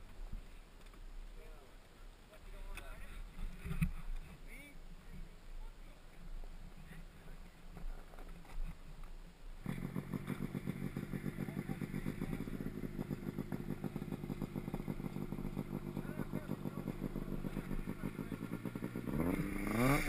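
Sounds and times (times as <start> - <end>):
dirt bike engine starting and running: 7.7 - 20.0.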